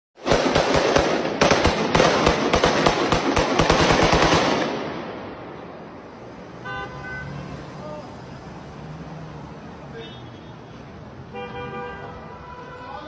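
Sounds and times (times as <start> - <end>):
rapid gunfire: 0.2 - 5.1.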